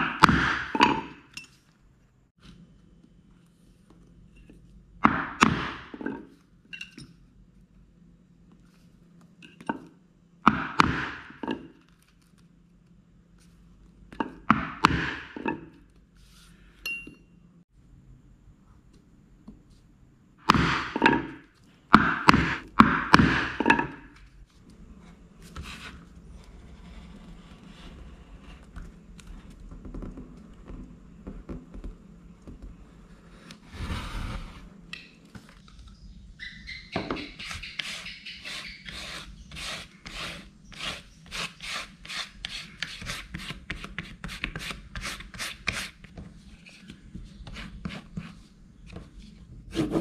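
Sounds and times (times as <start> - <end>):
mallet striking metal punch: 20.4 - 21.4, 22.0 - 24.0.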